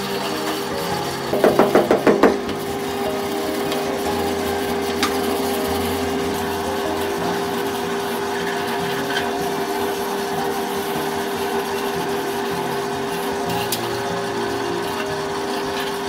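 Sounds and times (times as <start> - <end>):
machine motor humming: 0.0 - 16.0.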